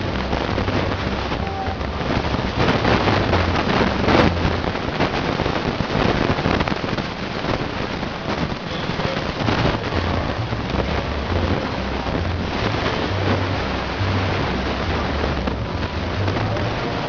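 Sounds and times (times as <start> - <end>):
low notes changing pitch: 0.0 - 5.0, 8.9 - 17.0
wind buffeting microphone: 0.0 - 17.0.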